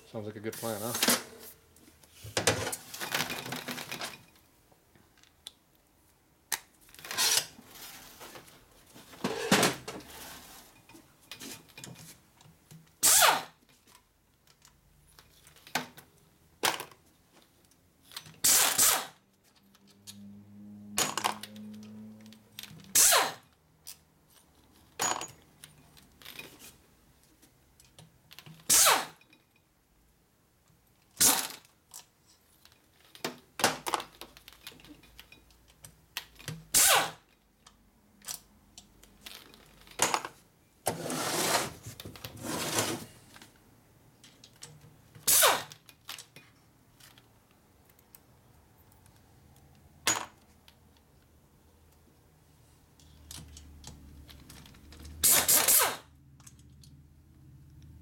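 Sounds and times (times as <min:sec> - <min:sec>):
pneumatic ratchet zipping: 0:07.1 - 0:07.5, 0:13.0 - 0:13.5, 0:18.4 - 0:19.2, 0:22.9 - 0:23.4, 0:28.6 - 0:29.2, 0:36.7 - 0:37.3, 0:45.2 - 0:45.7, 0:55.2 - 0:56.1.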